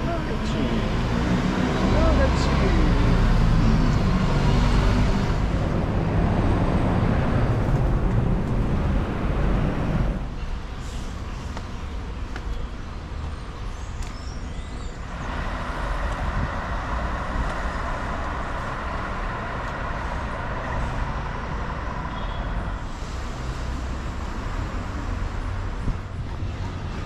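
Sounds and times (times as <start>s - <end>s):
vehicle passing: 0.0s - 10.2s
city traffic rumble: 0.0s - 27.0s.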